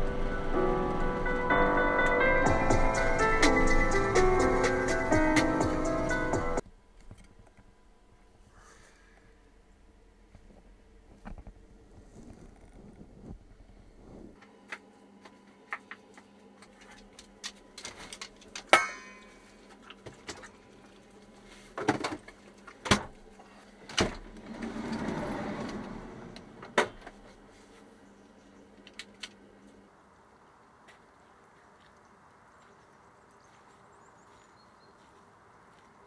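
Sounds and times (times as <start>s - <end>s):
rustling: 10.3s - 14.4s.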